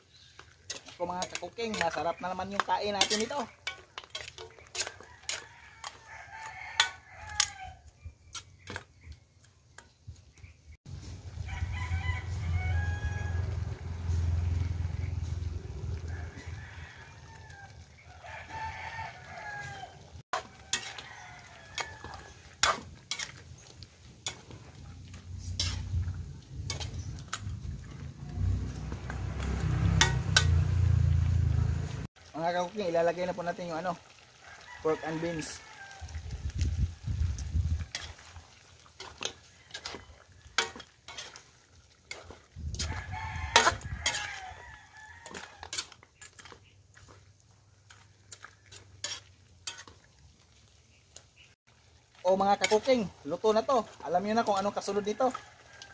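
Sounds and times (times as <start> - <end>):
metal ladle scraping wok: 0.0 - 7.6, 19.2 - 32.1, 35.4 - 50.1, 52.3 - 55.9
rooster crowing: 4.8 - 7.9, 11.3 - 22.8, 34.4 - 36.2, 39.4 - 40.7, 42.8 - 45.9, 54.7 - 55.9
low rumble: 12.3 - 16.4, 25.2 - 32.1.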